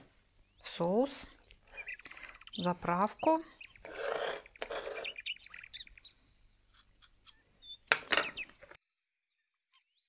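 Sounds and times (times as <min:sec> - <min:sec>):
knife scraping on cutting board: 0:03.9 - 0:05.2.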